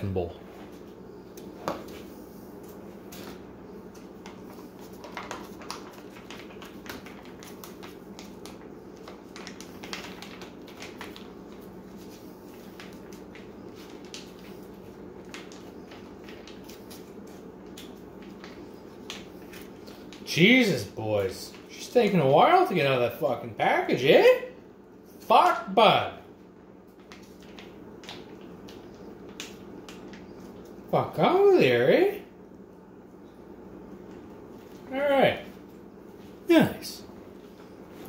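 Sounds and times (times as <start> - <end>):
steady low hum: 0.0 - 38.0
foil pouch crinkling and crackling: 4.4 - 20.2.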